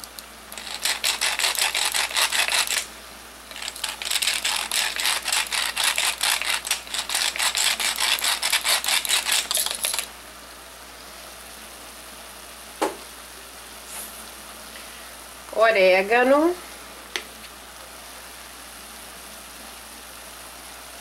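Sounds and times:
pepper mill grinder clicking: 0.0 - 2.9, 3.5 - 10.1.

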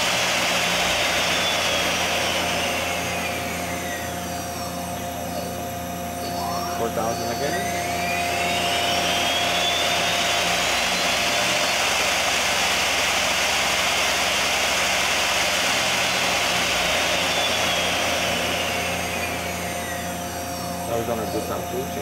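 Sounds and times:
lathe spindle whine: 0.0 - 22.0.

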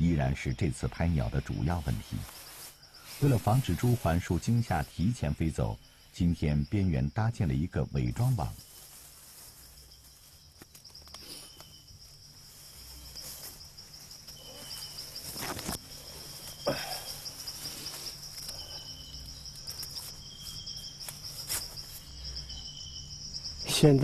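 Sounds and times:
crickets trilling: 0.0 - 24.0
short high insect chirps: 8.1 - 24.0.

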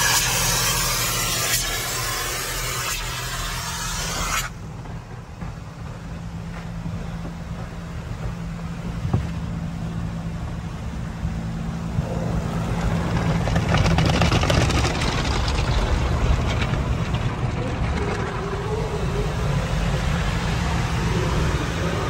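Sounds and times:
car wash machinery rumble: 0.0 - 22.0.

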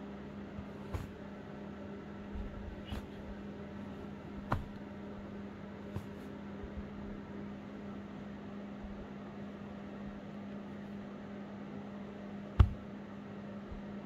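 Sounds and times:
low hum: 0.0 - 14.0
room noise hiss: 0.0 - 14.0.

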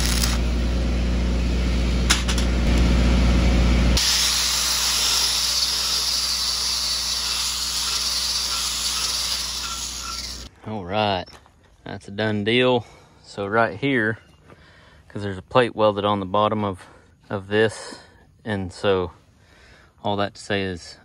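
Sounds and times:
angle grinder whining: 0.0 - 0.5, 3.9 - 10.5
welding arc crackling and hissing: 0.0 - 0.5, 4.0 - 10.5.

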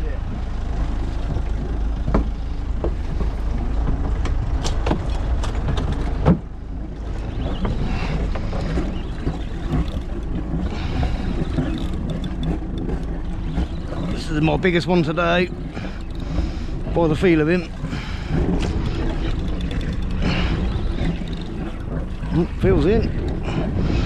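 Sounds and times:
low rumble of wind and water: 0.0 - 24.0
fishing tackle clicking and knocking: 8.6 - 13.2, 18.5 - 22.2.

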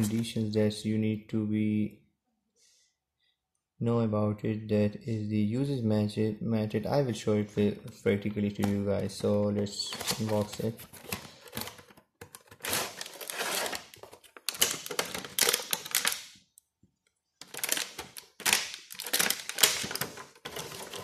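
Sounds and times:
plastic bag crinkling: 12.4 - 16.4, 17.4 - 21.0.

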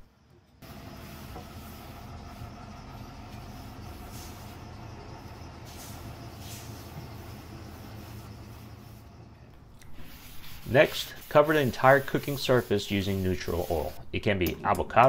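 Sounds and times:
low mechanical hum: 0.0 - 15.0
cloth wiping across metal plate: 5.7 - 9.1, 9.9 - 14.0.

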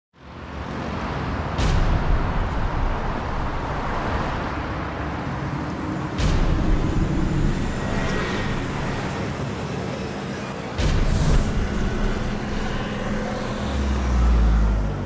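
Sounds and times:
traffic rumble: 0.2 - 15.0.

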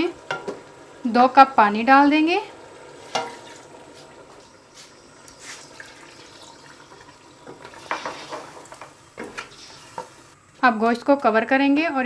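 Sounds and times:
faint sizzling liquid: 0.0 - 11.3
wooden spatula stirring in pot: 4.8 - 10.4
scrapes and knocks against pot: 7.5 - 10.1.

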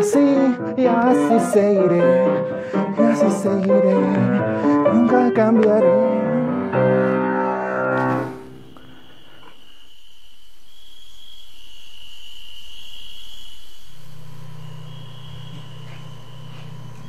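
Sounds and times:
hush: 0.0 - 5.2, 6.7 - 10.0
high-pitched chirring: 0.0 - 5.6
piano music: 0.0 - 8.8.

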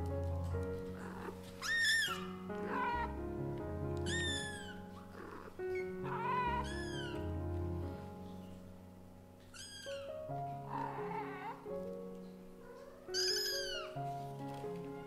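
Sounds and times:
background music with sustained tones: 0.0 - 15.0
kitten meowing: 1.0 - 3.1, 4.0 - 7.3, 9.5 - 11.7, 12.6 - 14.0.

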